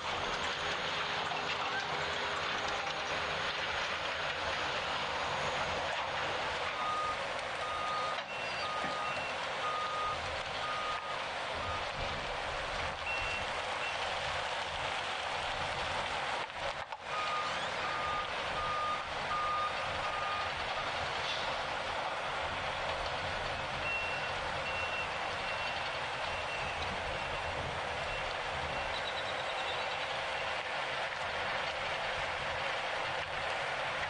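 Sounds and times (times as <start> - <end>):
work site noise: 0.0 - 34.0
reversing alarm beeps: 6.8 - 11.8, 13.1 - 14.0, 17.1 - 20.9, 23.8 - 29.5.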